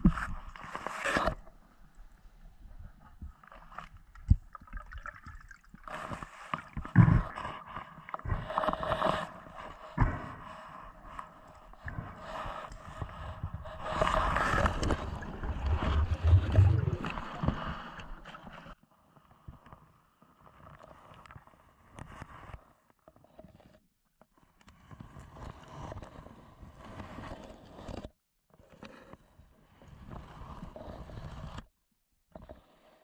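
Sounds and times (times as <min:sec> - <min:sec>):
water sloshing underwater: 0:00.0 - 0:18.8.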